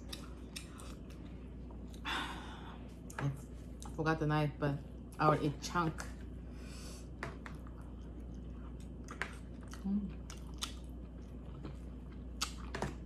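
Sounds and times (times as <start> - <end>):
person chewing food: 0.0 - 2.1, 7.0 - 13.0.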